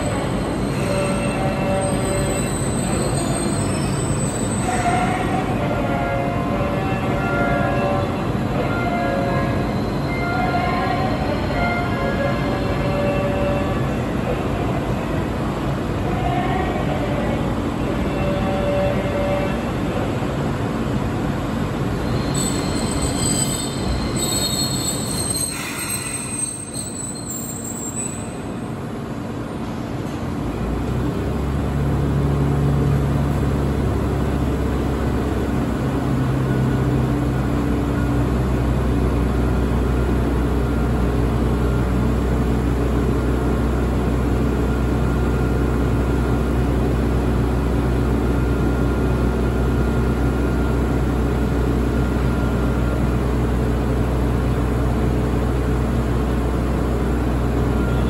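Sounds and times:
streetcar equipment humming: 0:00.0 - 0:58.0.

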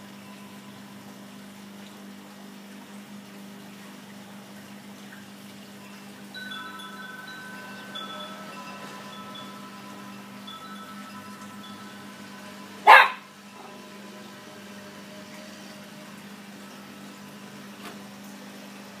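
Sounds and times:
small dog barking: 0:12.8 - 0:13.3.

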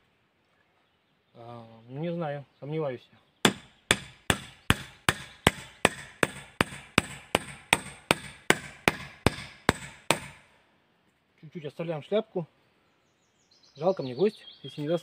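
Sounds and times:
axe hammering nail into wood: 0:03.4 - 0:10.5.

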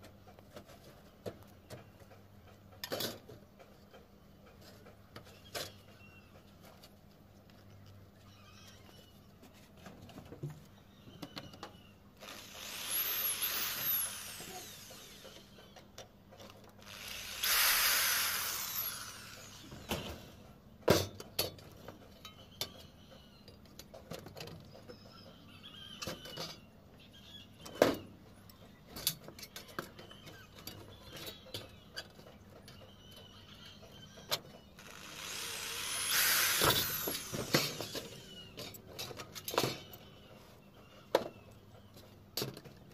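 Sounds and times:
electric drill drilling metal: 0:12.2 - 0:15.8, 0:16.8 - 0:20.3, 0:34.8 - 0:38.7.

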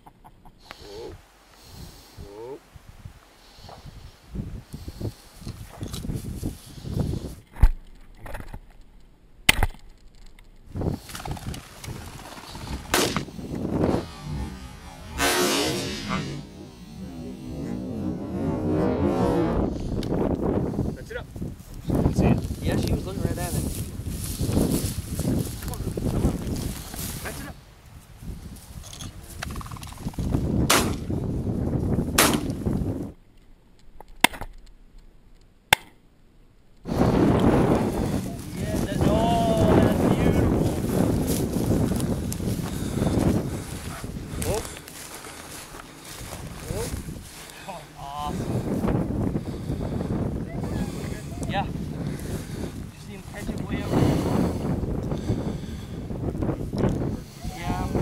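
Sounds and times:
wind and brush noise: 0:00.1 - 0:35.5, 0:36.8 - 0:58.0
shotgun shots: 0:12.8 - 0:13.3, 0:30.7 - 0:31.0, 0:32.2 - 0:32.5.

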